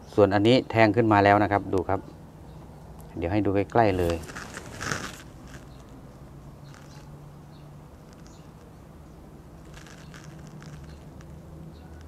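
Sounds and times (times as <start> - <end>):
soft clicks and rustles: 3.6 - 6.0, 6.6 - 7.1, 8.0 - 8.8, 9.6 - 12.0.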